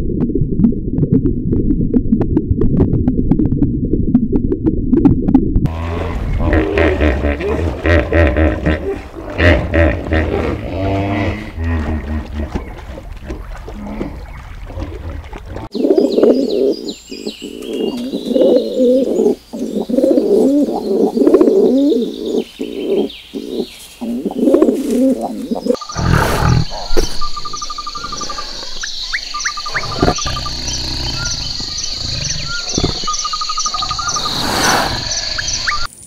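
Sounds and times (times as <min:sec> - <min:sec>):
pigeons cooing: 0:15.2 - 0:27.2
small birds chirping: 0:15.6 - 0:35.9
birds trilling: 0:15.7 - 0:35.9.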